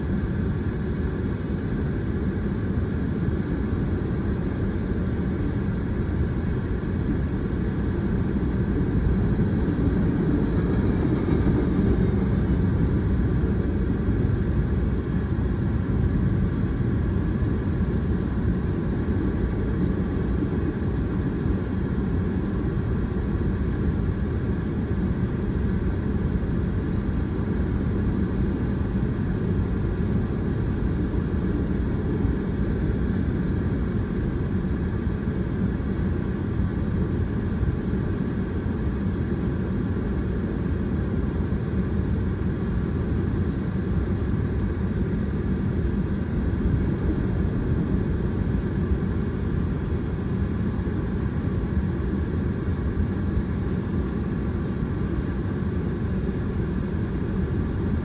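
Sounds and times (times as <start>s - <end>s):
freight train wheels rumbling on rail: 4.0s - 35.8s.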